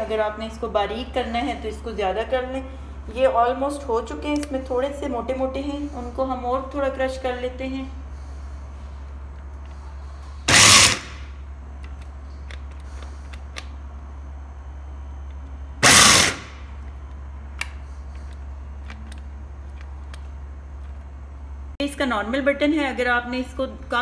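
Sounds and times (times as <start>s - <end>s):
mini chopper grinding nuts: 10.5s - 11.3s, 15.8s - 16.7s.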